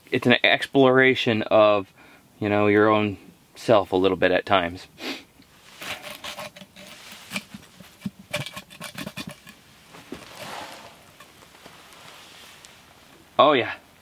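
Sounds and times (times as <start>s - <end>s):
soft hiss: 0.0s - 8.1s, 9.5s - 14.0s
stick scraping metal lid: 5.7s - 11.4s.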